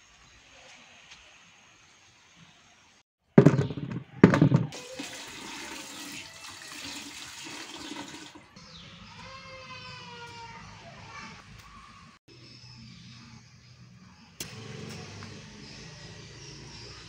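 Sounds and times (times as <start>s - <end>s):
tap water rushing: 4.5s - 8.5s
water splashing into bucket: 4.6s - 8.5s.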